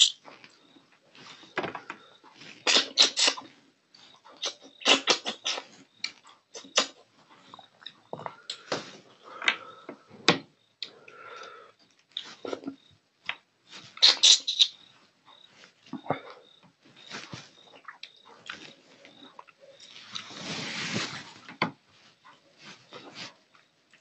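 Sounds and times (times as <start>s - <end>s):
man eating with wet smacking: 2.6s - 3.5s, 4.3s - 8.7s, 17.6s - 20.3s.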